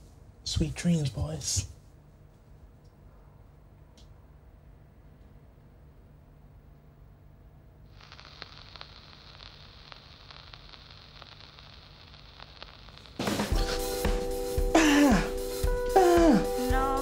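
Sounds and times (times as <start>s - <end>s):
vinyl surface hiss: 7.8s - 17.0s
vinyl crackles and pops: 7.9s - 14.8s
music from record: 8.1s - 17.0s.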